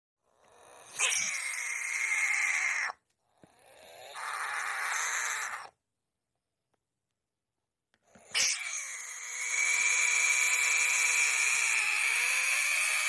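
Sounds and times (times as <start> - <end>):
frog screaming: 0.6 - 3.0, 3.8 - 5.8, 8.3 - 13.0.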